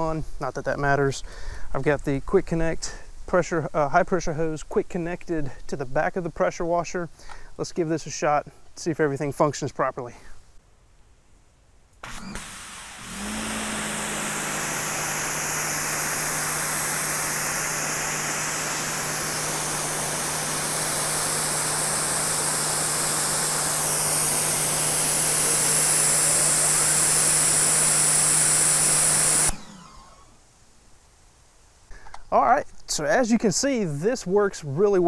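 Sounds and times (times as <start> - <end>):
motor and pump hum: 12.0 - 30.4
pressure washer water jet hiss: 12.0 - 30.4.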